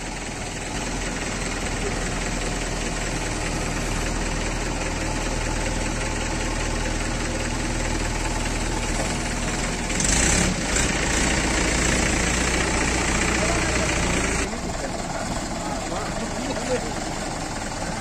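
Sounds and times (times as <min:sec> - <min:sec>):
diesel engine under load: 0:00.0 - 0:18.0.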